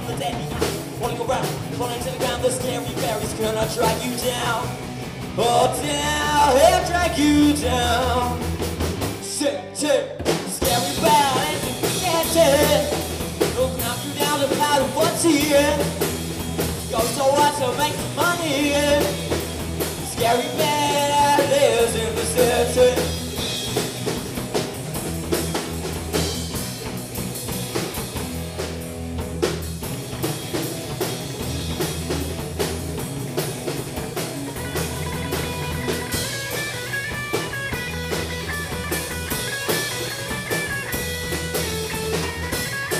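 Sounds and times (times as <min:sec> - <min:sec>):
rock band playing: 0:00.0 - 0:42.9
boy singing lead vocal: 0:00.1 - 0:04.7, 0:05.4 - 0:08.5, 0:09.2 - 0:16.1, 0:16.9 - 0:19.3, 0:20.0 - 0:23.3.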